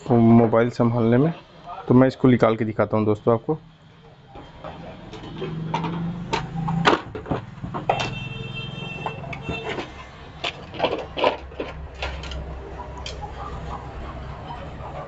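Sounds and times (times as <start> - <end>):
plastic clicks and rattles: 9.4 - 13.2.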